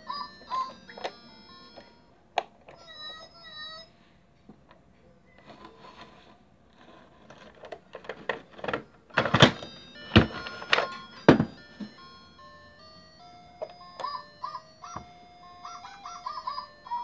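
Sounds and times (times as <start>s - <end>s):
toy electronic jingle: 0.0s - 2.1s, 9.6s - 17.0s
plastic toy knocks and thumps: 7.4s - 12.0s.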